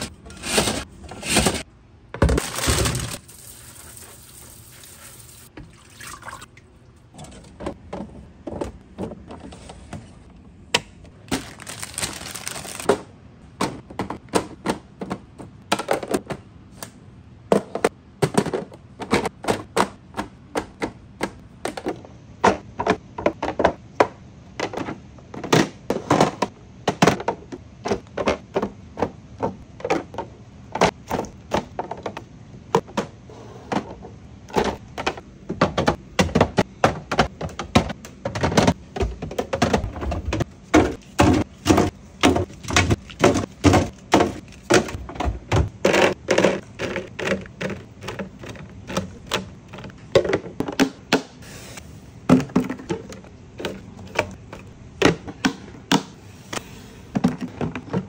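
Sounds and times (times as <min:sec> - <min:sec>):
plastic bins clicking and knocking: 0:00.0 - 0:03.2, 0:07.1 - 0:51.4, 0:52.2 - 0:58.0.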